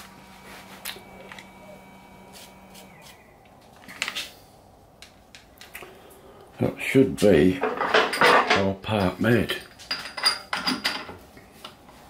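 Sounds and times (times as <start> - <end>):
milling machine humming: 0.0 - 3.5.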